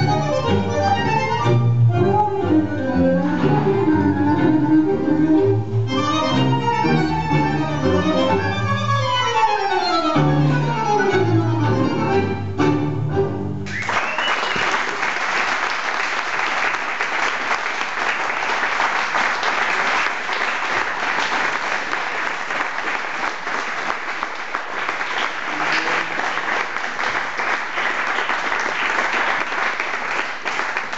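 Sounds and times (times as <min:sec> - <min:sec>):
audience applauding: 0:13.6 - 0:30.9.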